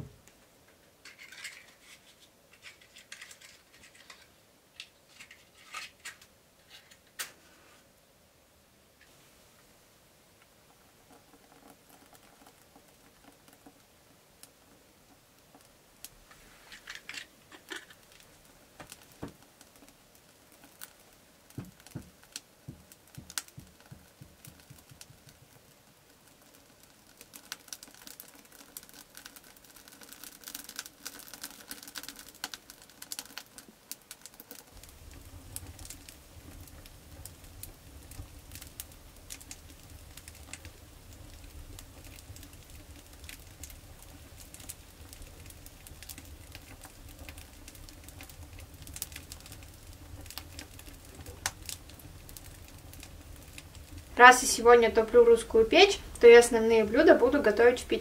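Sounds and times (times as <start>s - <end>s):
fire crackling and popping: 0.0s - 7.5s, 8.9s - 58.0s.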